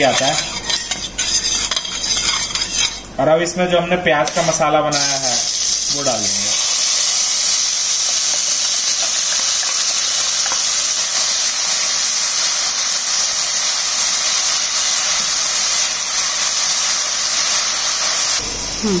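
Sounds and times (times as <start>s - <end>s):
onion paste sizzling in oil: 0.0s - 3.1s, 4.2s - 19.0s
steel spatula stirring: 0.0s - 3.2s.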